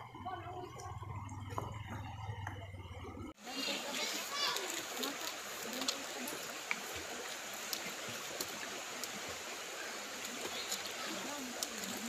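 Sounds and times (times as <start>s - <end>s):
stream rushing: 3.4s - 12.0s.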